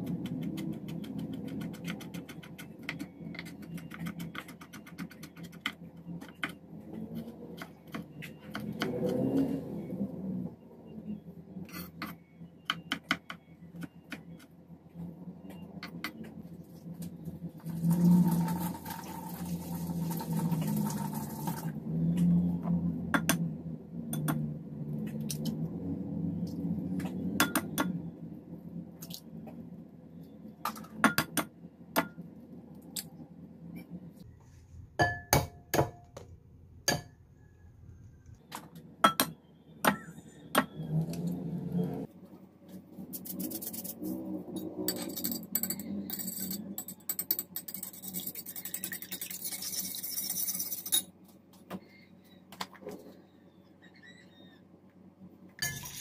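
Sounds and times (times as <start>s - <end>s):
metal spoon beating eggs in bowl: 0.0s - 5.8s, 44.9s - 51.1s.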